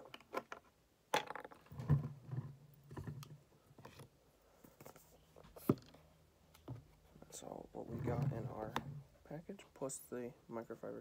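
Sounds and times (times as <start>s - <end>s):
plastic bottles clicking and knocking: 0.0s - 4.1s.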